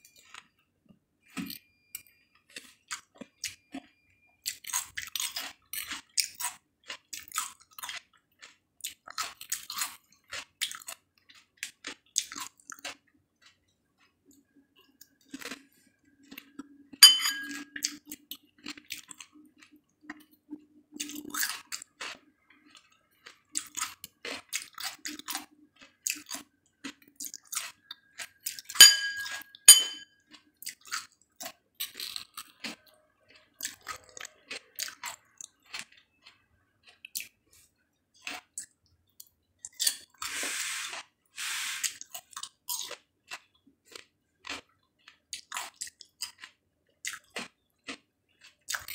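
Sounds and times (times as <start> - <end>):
chewing and wet crunching: 0.0 - 0.6, 1.3 - 17.0, 17.6 - 41.2, 41.8 - 48.9
fork clinking on ceramic plate: 17.0 - 17.8, 28.8 - 30.1
short hissing noises: 40.3 - 42.0.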